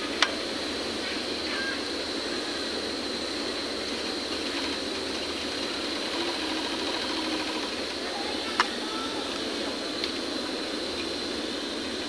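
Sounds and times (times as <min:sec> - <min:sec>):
overlock sewing machine running: 0:04.2 - 0:08.0.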